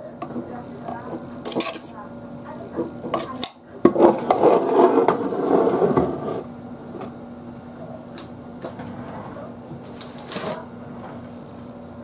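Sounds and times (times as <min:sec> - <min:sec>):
rustling and scraping: 0:04.0 - 0:06.5, 0:08.7 - 0:11.3.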